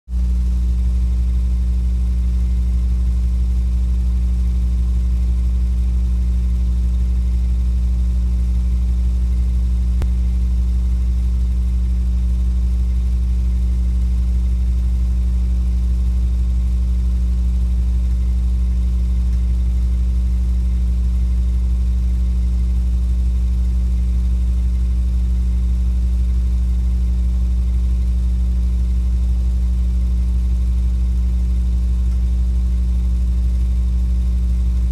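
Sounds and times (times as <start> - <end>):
steady low hum: 0.1 - 34.9.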